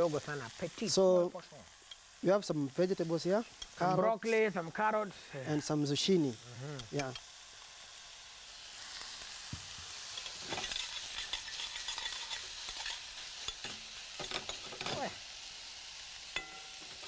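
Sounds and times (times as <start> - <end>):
vegetables sizzling in hot oil: 0.0 - 17.0
metal spoon scraping a pan: 10.1 - 15.1.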